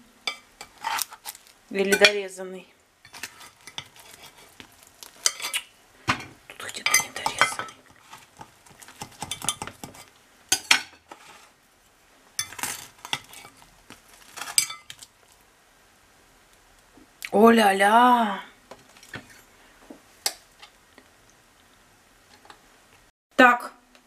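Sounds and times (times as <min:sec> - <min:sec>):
spatula scraping glass dish: 0:03.1 - 0:04.6, 0:08.9 - 0:11.5.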